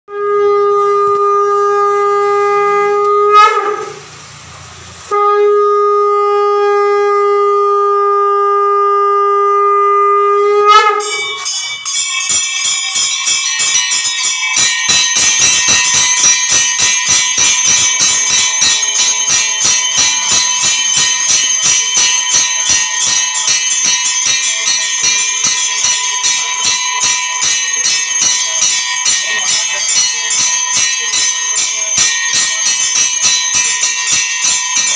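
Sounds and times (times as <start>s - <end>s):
conch shell blasts: 0.1s - 4.2s, 5.0s - 12.6s
bells clanging rapidly: 10.7s - 34.9s.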